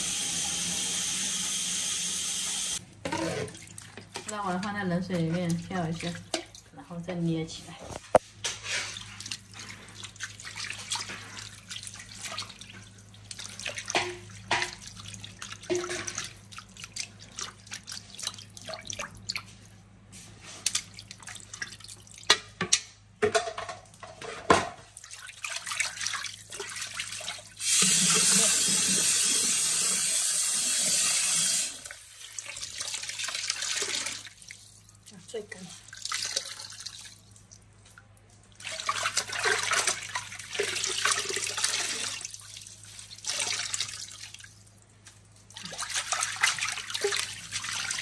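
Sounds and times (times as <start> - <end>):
hands splashing water in sink: 7.9 - 19.7, 20.5 - 29.6, 31.3 - 48.0.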